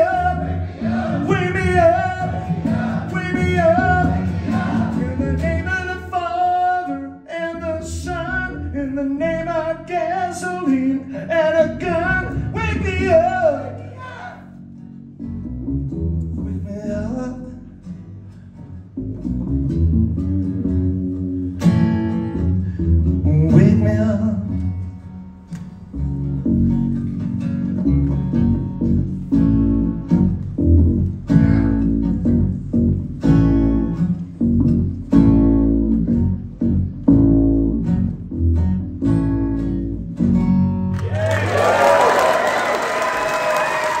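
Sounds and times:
acoustic guitar strumming: 0.0s - 41.0s
double bass low notes: 0.0s - 41.0s.

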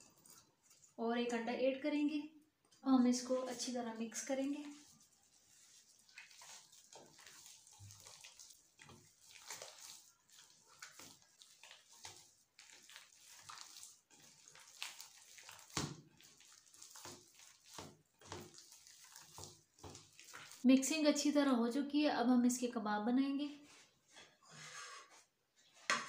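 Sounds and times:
wet squishing of hand kneading: 2.7s - 20.7s.

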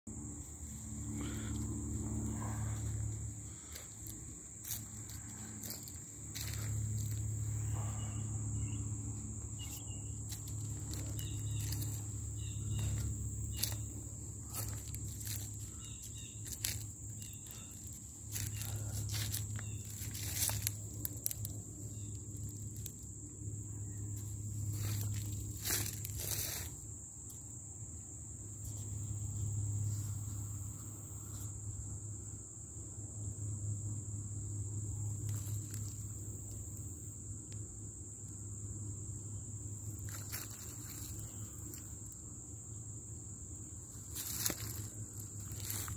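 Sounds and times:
high-pitched insect drone: 0.1s - 45.9s
footsteps on dry leaves: 2.2s - 7.9s, 9.6s - 23.0s, 24.1s - 26.8s, 35.3s - 36.2s, 40.0s - 41.8s, 43.9s - 45.9s.

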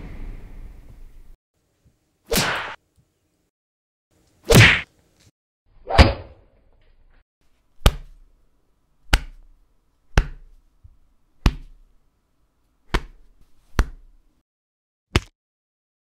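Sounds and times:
punch sound effects: 2.3s - 2.8s, 4.5s - 4.9s.

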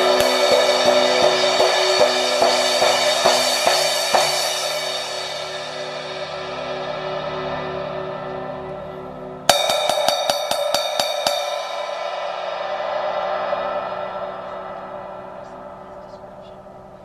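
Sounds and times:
crash cymbal tapped with drumstick: 0.0s - 6.6s, 9.5s - 13.4s.

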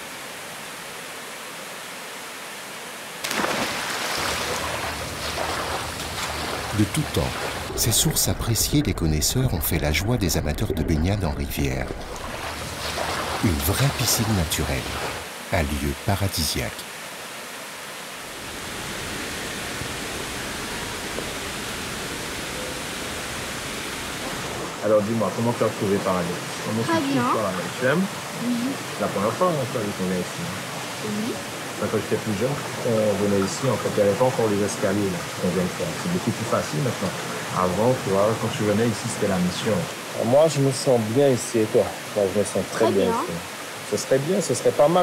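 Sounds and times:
waterfall rushing into pool: 0.0s - 45.0s
swimmer splashing: 3.2s - 8.0s, 11.9s - 15.3s.

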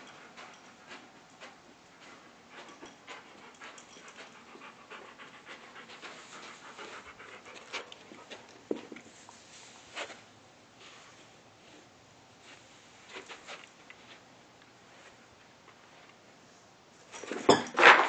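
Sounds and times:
dog panting: 0.0s - 9.0s.

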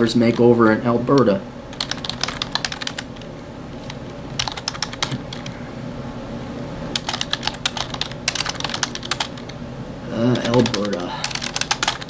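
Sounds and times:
typing on keyboard: 1.7s - 3.2s, 4.4s - 5.5s, 7.0s - 9.6s, 10.4s - 12.0s.

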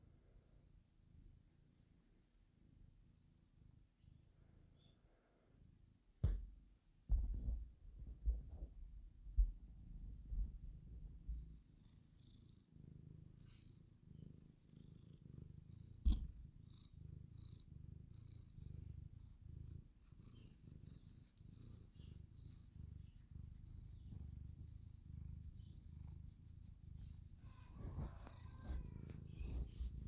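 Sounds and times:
cat purring: 0.0s - 6.4s, 7.2s - 30.0s
sharp thump: 6.2s - 6.5s.

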